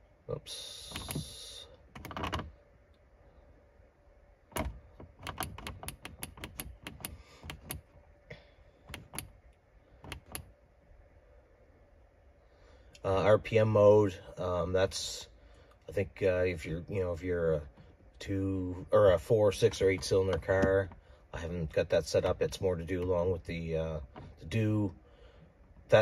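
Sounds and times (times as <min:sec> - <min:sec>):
push buttons clicking: 0:04.6 - 0:07.9, 0:08.9 - 0:09.4, 0:10.0 - 0:10.5.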